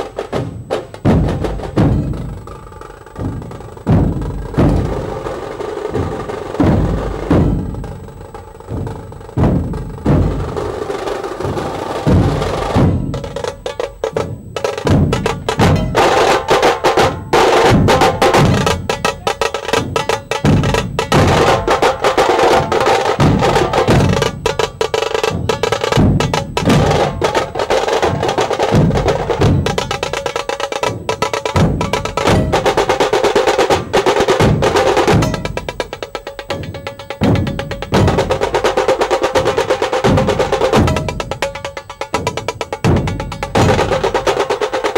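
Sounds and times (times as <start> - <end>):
deep dhol drum strokes: 0.0 - 44.9
rapid tasha drum rolls: 0.0 - 44.9.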